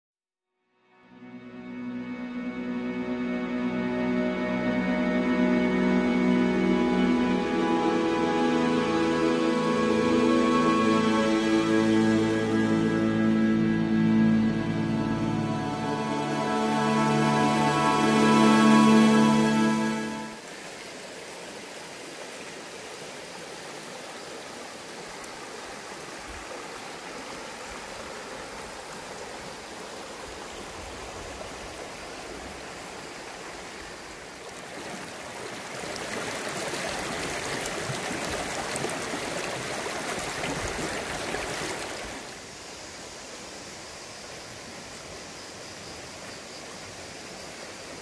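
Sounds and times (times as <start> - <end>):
stream flowing over rocks: 14.5 - 48.0.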